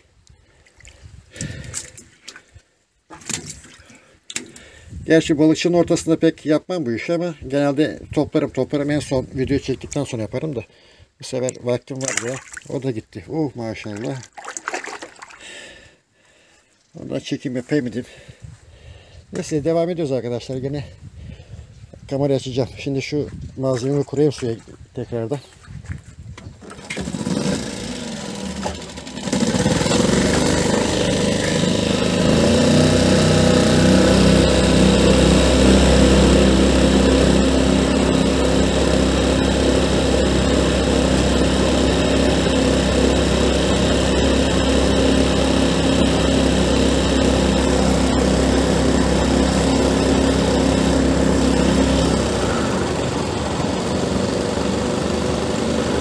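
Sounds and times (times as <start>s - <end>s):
small boat motor running: 26.6s - 56.0s.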